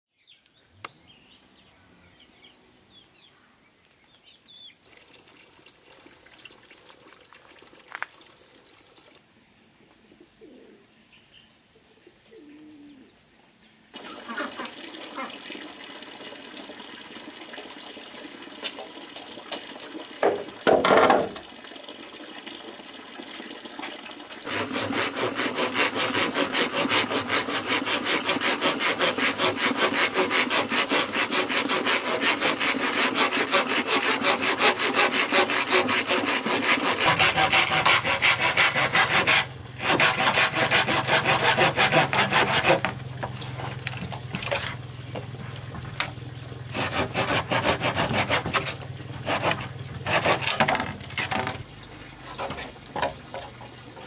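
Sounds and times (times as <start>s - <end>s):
dove cooing: 10.4s - 10.9s, 12.0s - 13.1s
hand sawing wood: 24.4s - 44.8s, 46.7s - 51.6s.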